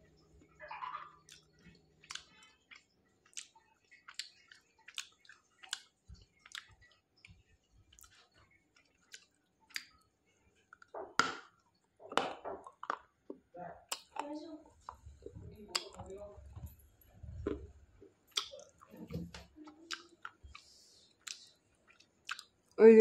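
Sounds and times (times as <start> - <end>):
chewing crunchy clay: 0.8 - 10.0, 18.3 - 18.9.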